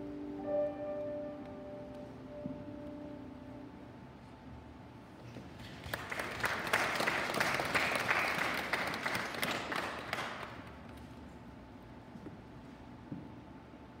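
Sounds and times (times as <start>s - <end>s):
audience applauding: 5.6s - 10.8s.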